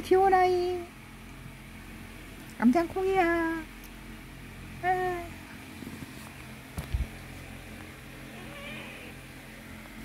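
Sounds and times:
low background hum: 0:00.0 - 0:10.0
faint cat meow: 0:08.3 - 0:09.2.

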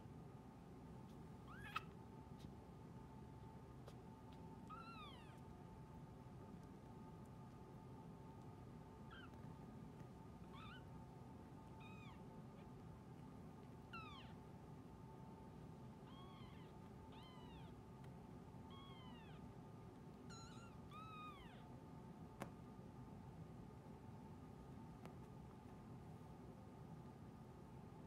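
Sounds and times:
kittens mewing: 0:01.4 - 0:02.0.

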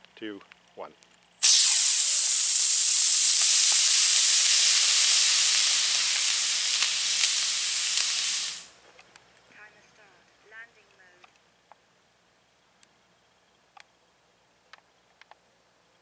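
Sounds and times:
rocket motor hissing: 0:01.4 - 0:08.7.

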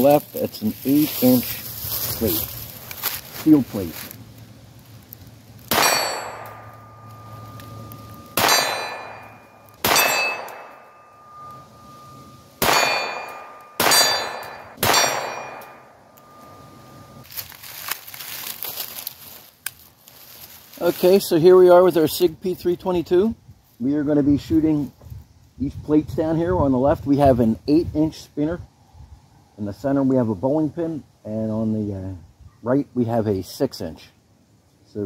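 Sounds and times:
pistol shots: 0:05.7 - 0:06.8, 0:08.3 - 0:10.8, 0:12.6 - 0:15.9
steel plate ringing: 0:05.7 - 0:17.2.

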